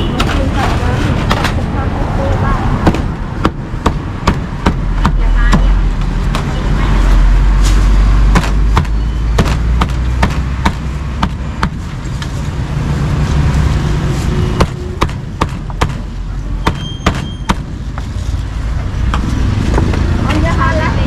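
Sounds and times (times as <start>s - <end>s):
low traffic rumble: 0.0s - 21.0s
cleaver chopping on a block: 8.3s - 11.8s.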